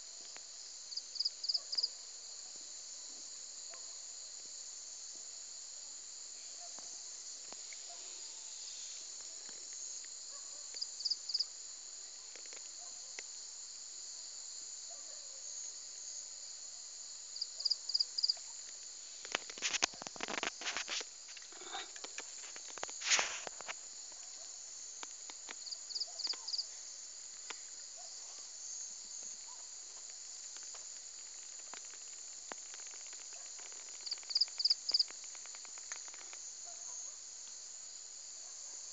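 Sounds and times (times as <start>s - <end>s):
insects chorus: 0.0s - 38.9s
rustling and clicks: 18.6s - 24.4s, 29.9s - 36.4s.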